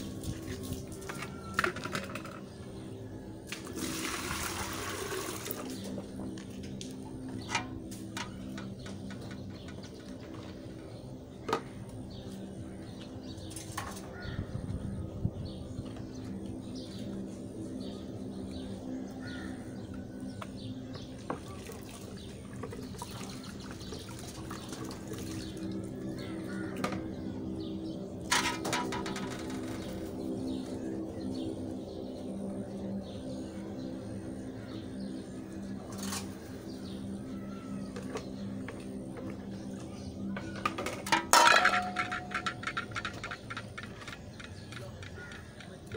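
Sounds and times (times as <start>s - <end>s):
steady low hum: 4.5s - 45.9s
small birds chirping: 5.6s - 45.9s
metal dishes clinking: 28.3s - 29.8s, 40.5s - 45.5s.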